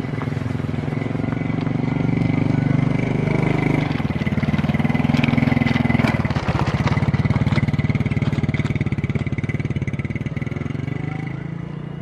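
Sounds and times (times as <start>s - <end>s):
locomotive engine running: 0.0s - 10.5s.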